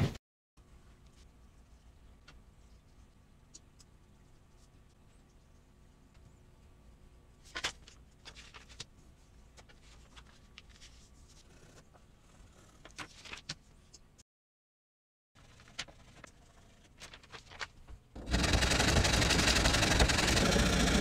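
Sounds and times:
faint steady hum: 0.6 - 14.2
paper rustling: 7.4 - 8.9, 9.5 - 11.4, 12.8 - 14.0, 15.4 - 18.0.

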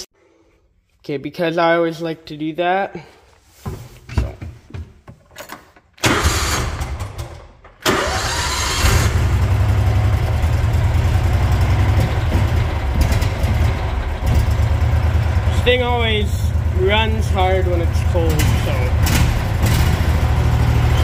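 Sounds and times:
starter motor cranking: 6.0 - 15.6
engine running steadily: 8.8 - 21.0.

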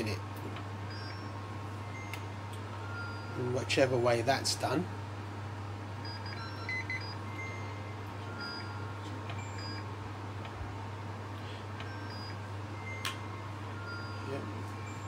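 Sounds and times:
steady low hum: 0.0 - 15.0
short electronic beeps: 0.9 - 1.3, 2.8 - 3.4, 6.0 - 9.9, 11.9 - 15.0.

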